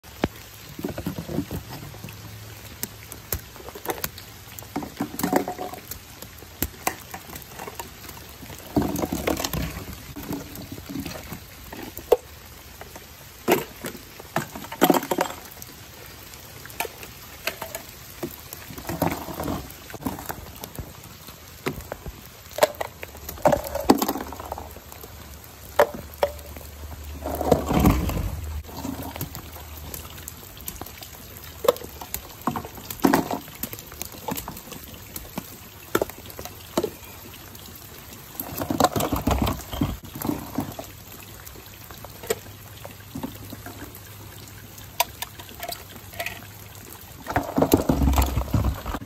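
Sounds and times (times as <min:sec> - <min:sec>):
light rain on wet ground: 0:00.0 - 0:49.0
plastic toy bins clicking and rattling: 0:03.3 - 0:06.0, 0:38.4 - 0:40.8, 0:47.3 - 0:49.0.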